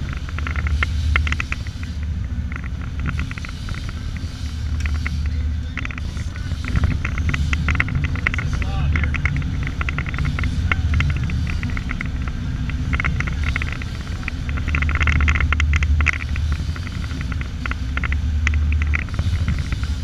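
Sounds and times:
motorboat engine rumble: 0.0s - 20.0s
quick sharp ticks: 0.0s - 20.0s.

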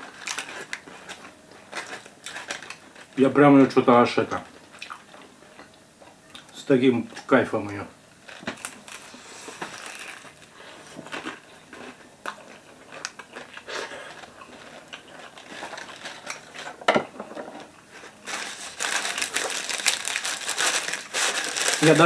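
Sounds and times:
paper wrapper crinkling: 0.0s - 3.4s, 8.2s - 11.4s, 12.9s - 16.8s, 18.0s - 22.0s
person chewing food: 4.7s - 6.5s, 8.6s - 16.7s.

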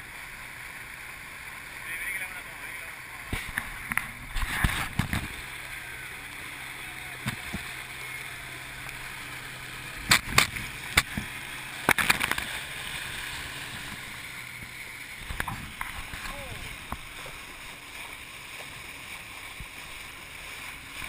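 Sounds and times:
river water rushing and sloshing: 0.0s - 21.0s
sharp knocks and splashes: 3.2s - 5.7s, 7.2s - 7.8s, 10.0s - 18.8s.

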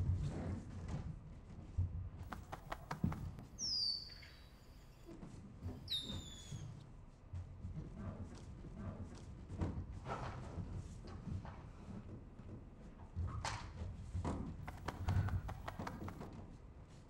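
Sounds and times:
bare feet squeaking on wooden floor: 2.3s - 3.5s
soft footfalls: 2.3s - 3.5s.

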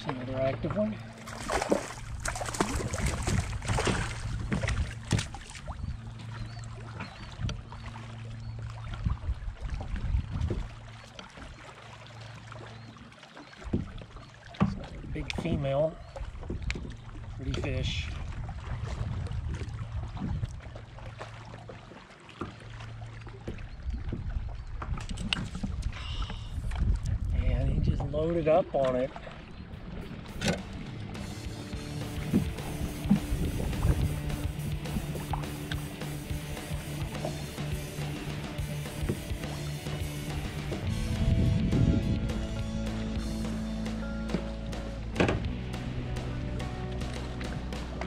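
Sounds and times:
short splashes: 0.0s - 27.0s, 28.7s - 48.0s
water lapping against kayak hull: 0.0s - 48.0s
wind buffeting microphone: 1.4s - 6.1s, 8.9s - 10.9s, 14.7s - 20.9s, 23.6s - 28.5s, 32.2s - 35.3s, 40.4s - 42.8s
knocks on hull: 13.7s - 15.7s, 45.1s - 45.6s.

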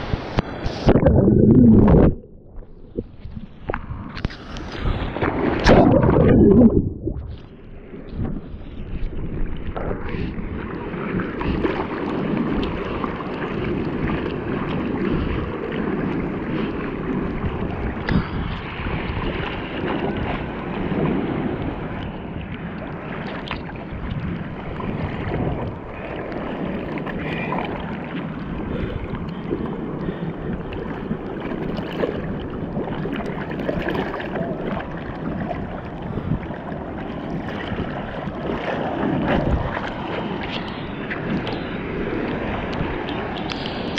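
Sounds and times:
wind on microphone: 0.0s - 43.9s
water splashing against bodyboard: 0.2s - 7.5s, 23.1s - 43.7s.

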